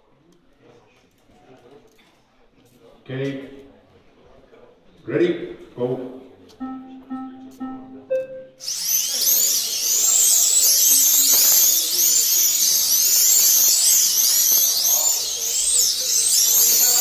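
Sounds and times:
slot car motors whining: 8.6s - 17.0s.

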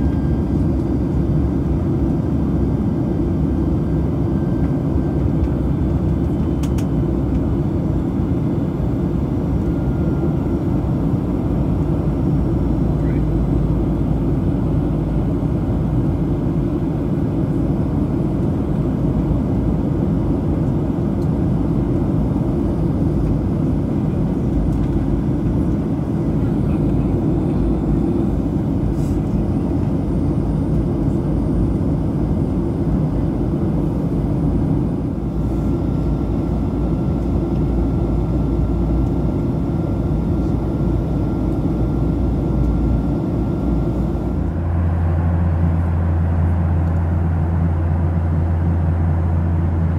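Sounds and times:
airplane cabin engine noise: 0.0s - 49.9s
airflow: 25.2s - 31.2s.

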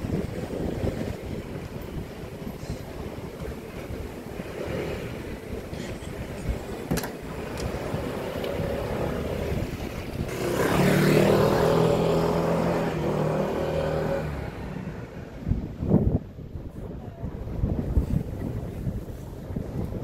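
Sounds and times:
street noise: 0.0s - 20.0s
vehicle engine passing: 10.3s - 15.3s.

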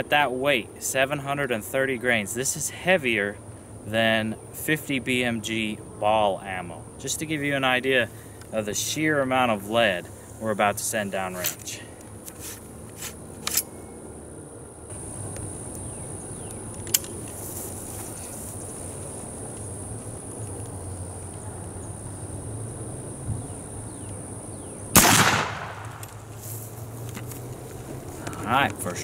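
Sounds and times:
rifle shot: 24.9s - 26.3s.

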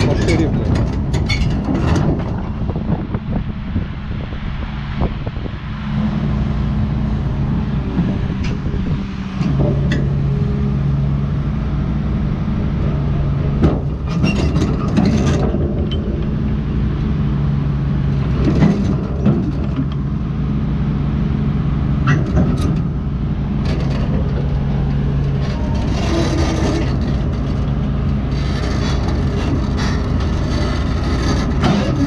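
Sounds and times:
metallic clanks and knocks: 0.0s - 2.6s, 9.3s - 10.4s, 13.6s - 16.6s, 22.0s - 23.0s, 23.6s - 32.0s
excavator diesel engine running: 0.0s - 32.0s.

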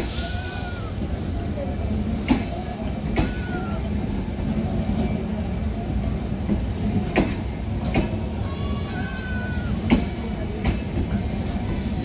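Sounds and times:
train coaches rumbling past: 0.0s - 12.0s
wheels clacking on rail joints: 0.0s - 12.0s.

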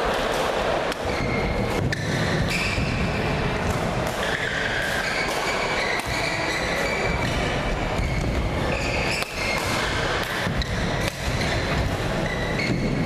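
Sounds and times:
racket striking shuttlecock: 3.6s - 7.4s, 9.1s - 11.6s
shoes squeaking on court: 4.2s - 10.0s, 10.6s - 13.0s.

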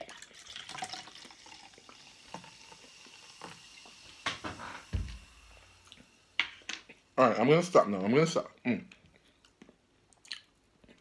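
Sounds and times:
soda pouring into a glass: 0.0s - 6.4s
dull thump: 4.3s - 5.3s.

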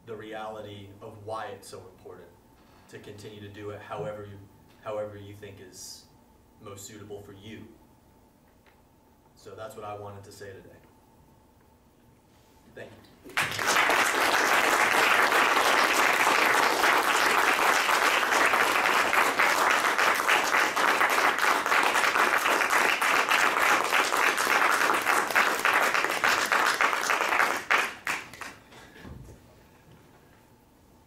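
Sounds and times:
audience applauding: 13.3s - 28.6s.

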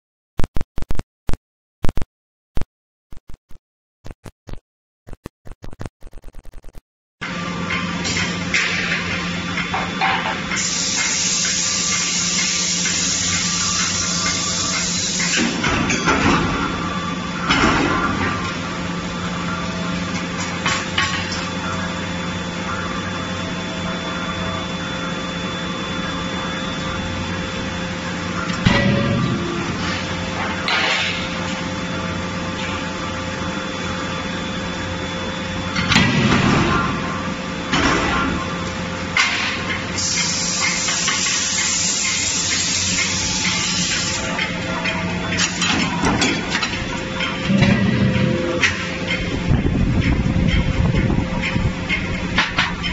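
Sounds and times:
high whine: 5.2s - 52.9s
machinery humming: 7.2s - 52.9s
loud hiss of spraying air: 40.0s - 44.2s.

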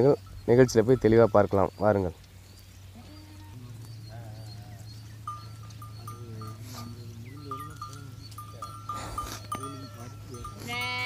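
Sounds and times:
sheep bleating: 2.9s - 4.8s, 5.5s - 11.0s
small bell clinking: 5.2s - 11.0s.

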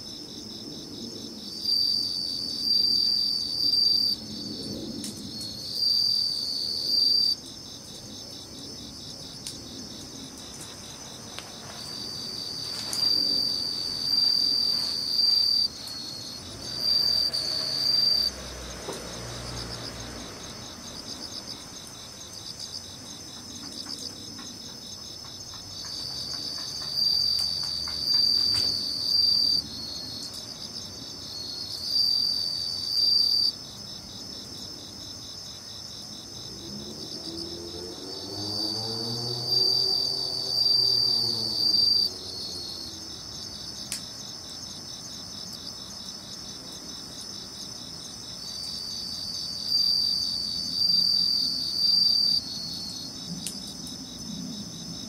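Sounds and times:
crickets chirping: 0.0s - 55.0s
wood fire crackling: 9.3s - 16.6s.

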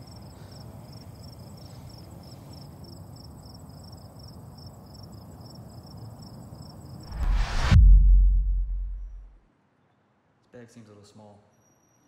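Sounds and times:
crickets chirping: 0.0s - 7.0s
low rumble of night ambience: 0.0s - 9.4s.

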